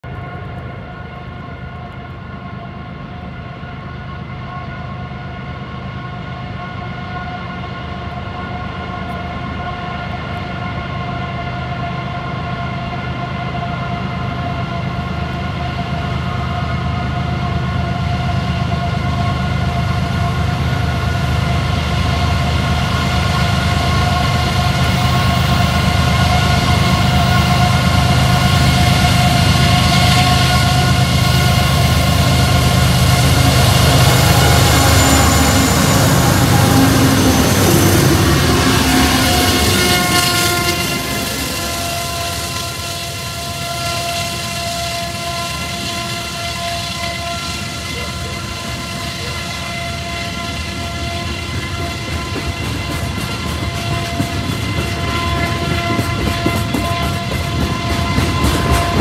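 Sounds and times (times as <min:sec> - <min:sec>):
locomotive engine rumble: 0:19.0 - 0:59.0
high siren-like whine: 0:23.0 - 0:52.9.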